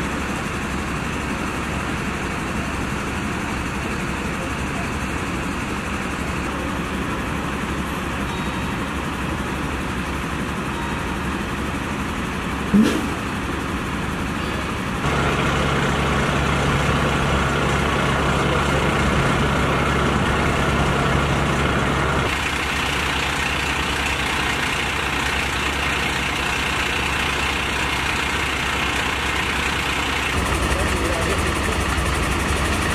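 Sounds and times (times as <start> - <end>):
diesel engines running: 0.0 - 32.9
loud bump: 12.7 - 13.4.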